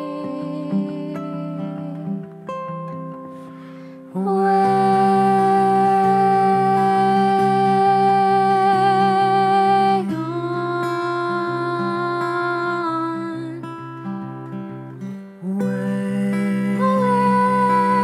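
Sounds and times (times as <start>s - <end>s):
fingerpicked acoustic guitar: 0.0s - 18.0s
woman and man singing harmony: 4.2s - 13.7s, 15.4s - 18.0s.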